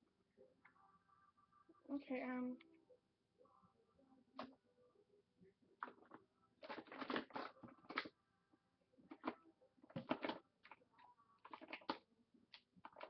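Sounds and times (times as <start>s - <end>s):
makeup items clicking and rattling: 5.8s - 8.1s, 9.1s - 10.8s, 11.4s - 13.0s.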